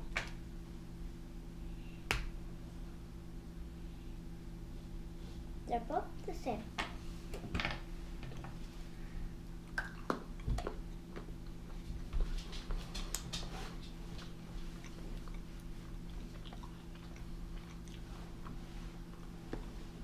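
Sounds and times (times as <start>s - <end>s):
chewing chocolate bar: 14.2s - 19.8s.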